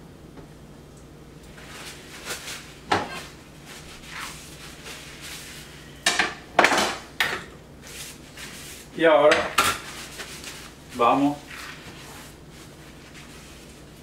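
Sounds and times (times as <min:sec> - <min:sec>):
paper towel rustling: 0:01.5 - 0:06.0, 0:07.8 - 0:14.0.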